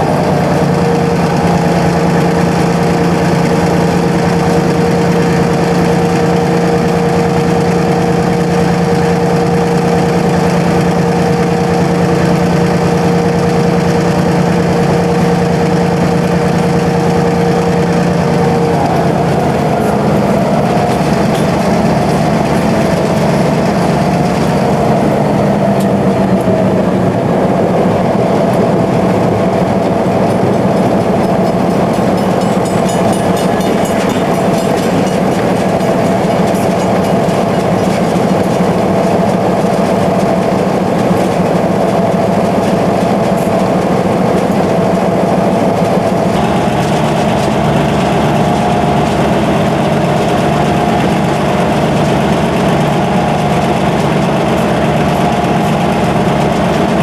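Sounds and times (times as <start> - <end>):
diesel locomotive engine running: 0.0 - 57.0
steady whine: 0.0 - 57.0.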